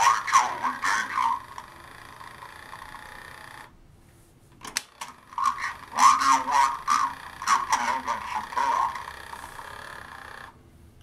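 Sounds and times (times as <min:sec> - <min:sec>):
toy recorded voice playback: 0:00.0 - 0:01.7, 0:05.2 - 0:09.4
small motor humming: 0:01.2 - 0:03.7, 0:05.1 - 0:10.6.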